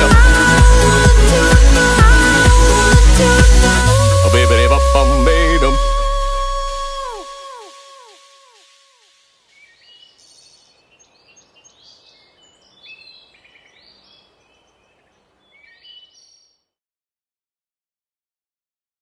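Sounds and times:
song note echoing: 0:00.0 - 0:09.1
faint forest ambience: 0:07.4 - 0:16.7
small birds chirping: 0:09.4 - 0:16.6.

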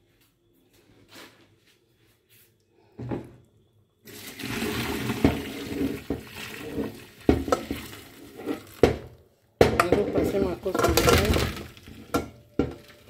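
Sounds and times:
water splashing through strainer: 0:04.1 - 0:09.0.

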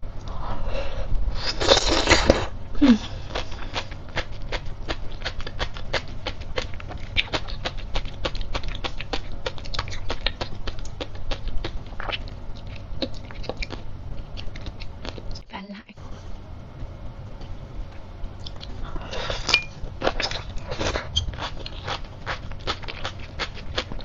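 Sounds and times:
chewing with popping clicks: 0:03.7 - 0:15.4, 0:18.4 - 0:18.8, 0:19.5 - 0:24.0.

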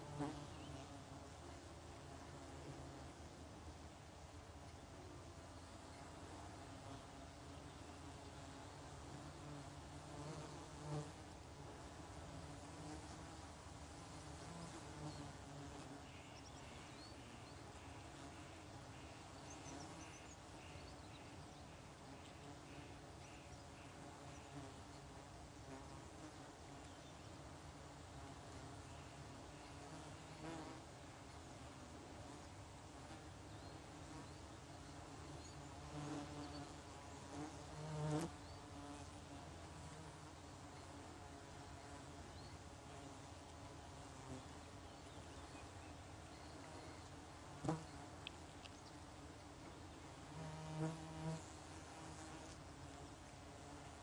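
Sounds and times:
flying insect buzzing: 0:35.0 - 0:42.0, 0:46.6 - 0:48.4, 0:50.2 - 0:52.6.

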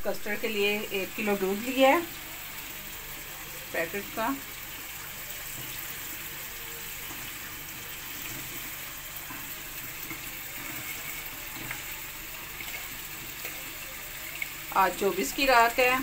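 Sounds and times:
milk pouring into a pot: 0:04.4 - 0:15.0.

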